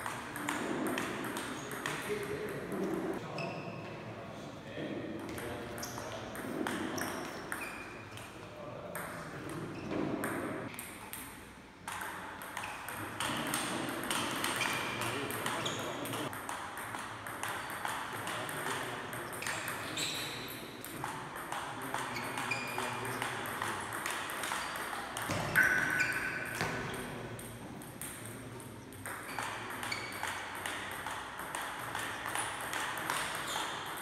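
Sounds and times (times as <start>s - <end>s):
table tennis ball clicking: 27.4s - 34.0s.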